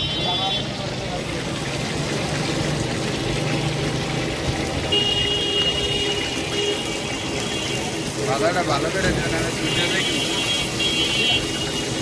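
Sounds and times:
chicken frying in sizzling oil: 0.0s - 12.0s
street traffic: 0.0s - 12.0s.

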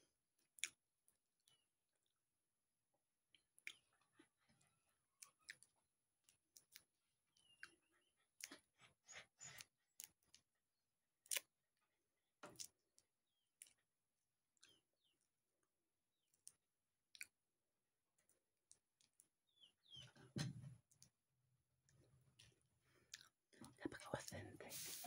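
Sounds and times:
faint clicks of peeling skin: 0.6s - 0.8s, 5.2s - 7.8s, 11.2s - 11.5s, 16.3s - 17.4s.

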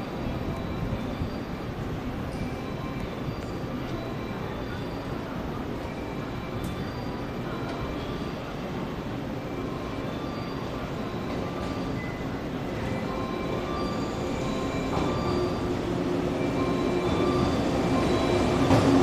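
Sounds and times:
electric train approaching: 0.0s - 19.0s.

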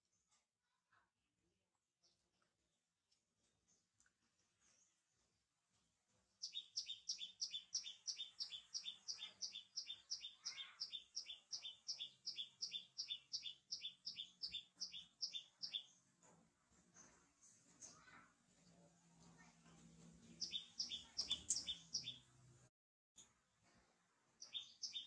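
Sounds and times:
small bird chirping: 6.4s - 16.1s, 20.2s - 22.3s, 24.4s - 25.0s.

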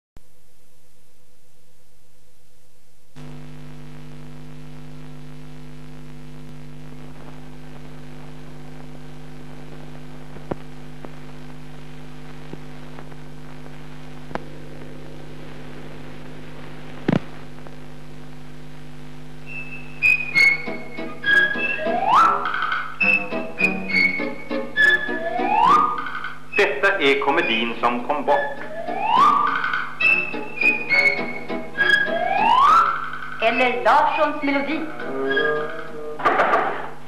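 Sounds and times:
electrical mains hum: 0.2s - 37.0s
music: 19.4s - 36.9s.

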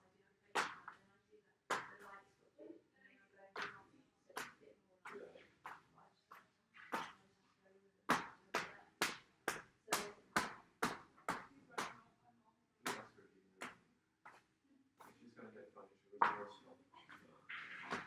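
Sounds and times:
ball slapping paper on wall: 3.6s - 7.3s, 8.1s - 12.0s, 16.2s - 16.6s, 17.5s - 18.0s.

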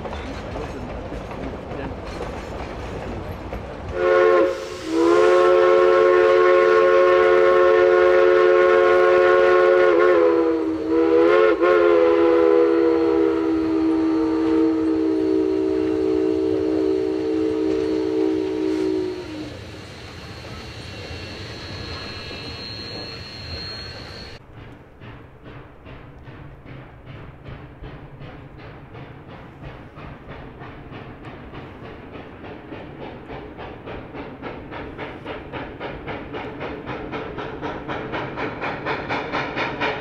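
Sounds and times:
train noise: 0.0s - 40.0s
steam locomotive chime whistle: 3.9s - 24.4s.

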